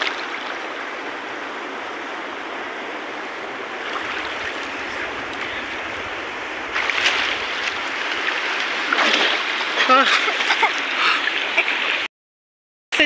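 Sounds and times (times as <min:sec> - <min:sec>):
water splashing: 0:00.0 - 0:01.0, 0:03.4 - 0:12.1
river water rushing and lapping: 0:00.0 - 0:12.1.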